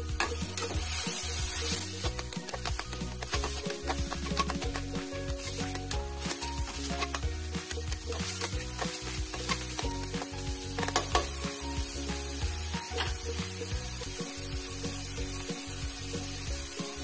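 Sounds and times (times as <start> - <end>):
background music: 0.0 - 17.0
meat sizzling in a wok: 0.0 - 17.0
metal spatula scraping pan: 0.2 - 7.2.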